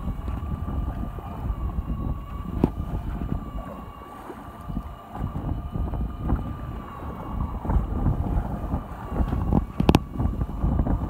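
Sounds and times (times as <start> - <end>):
boat engine hum: 0.0 - 11.0
wind buffeting microphone: 0.0 - 11.0.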